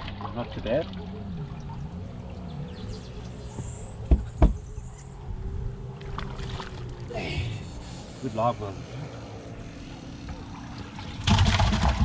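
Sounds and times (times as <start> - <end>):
steady low hum: 0.0 - 12.0
sharp knocks: 4.1 - 4.6.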